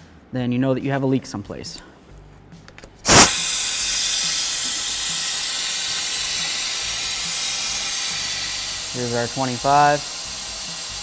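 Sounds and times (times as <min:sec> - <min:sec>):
compressed air hissing through tool: 0:03.0 - 0:11.0.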